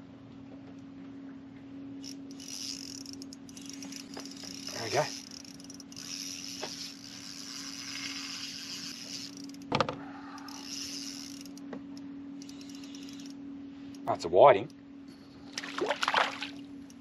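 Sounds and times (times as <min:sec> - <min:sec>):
steady low hum: 0:00.0 - 0:17.0
fishing reel whirring: 0:02.0 - 0:14.2.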